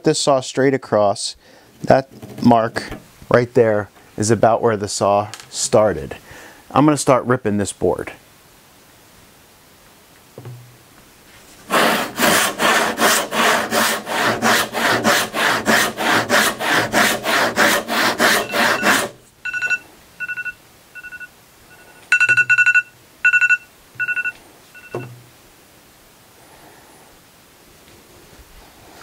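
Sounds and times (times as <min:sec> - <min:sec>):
hand saw ripping board: 0:11.6 - 0:19.2
timer beeping: 0:18.4 - 0:25.1.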